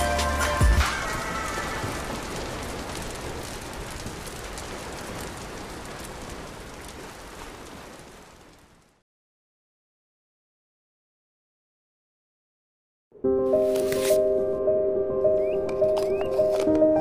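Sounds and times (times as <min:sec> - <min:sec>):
wood fire crackling: 0:00.4 - 0:09.0, 0:15.4 - 0:17.0.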